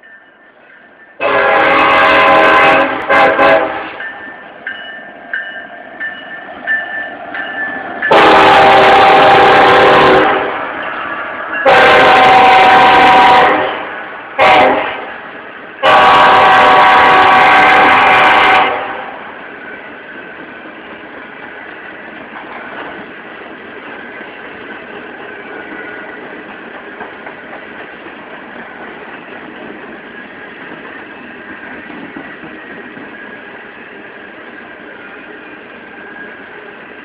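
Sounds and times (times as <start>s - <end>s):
locomotive air horn blasts: 1.2s - 4.0s, 8.1s - 10.7s, 11.6s - 15.1s, 15.8s - 19.2s.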